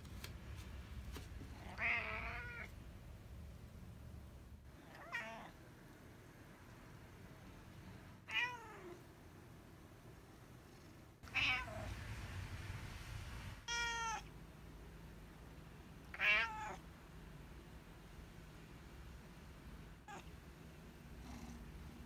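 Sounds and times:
cat meowing: 1.6 - 2.7, 4.8 - 5.6, 8.3 - 9.0, 11.2 - 11.9, 13.6 - 14.3, 16.1 - 16.8, 20.0 - 20.3.

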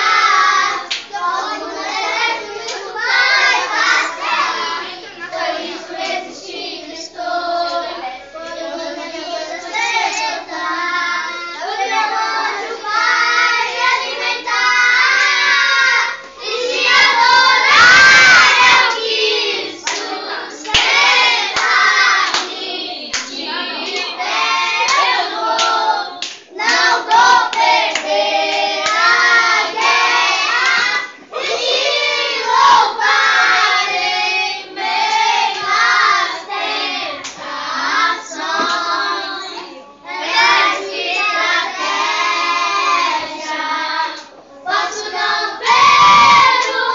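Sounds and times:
children and woman singing: 0.0 - 46.9
hand clapping: 0.9 - 1.1, 19.8 - 24.2, 24.8 - 29.2.

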